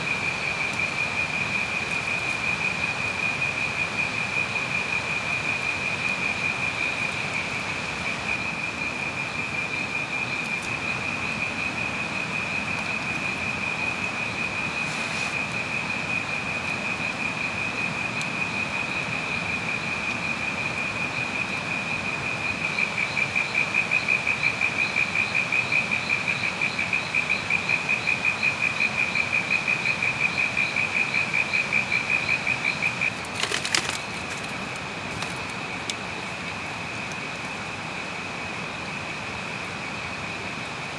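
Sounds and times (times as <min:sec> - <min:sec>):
night insects chirring: 0:00.0 - 0:40.9
sharp crackle: 0:08.4 - 0:16.8, 0:32.4 - 0:37.6.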